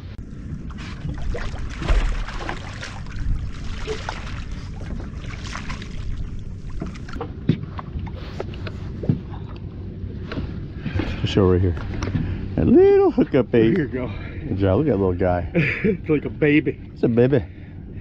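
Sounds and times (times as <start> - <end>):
water slapping boat hull: 0.0 - 18.0
wind buffeting microphone: 0.1 - 9.4.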